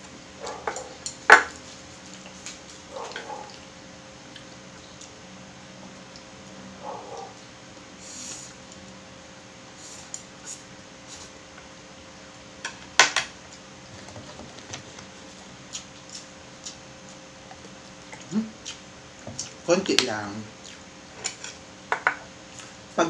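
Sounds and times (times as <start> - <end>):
chewing noodles: 15.2 - 19.7, 20.6 - 20.9.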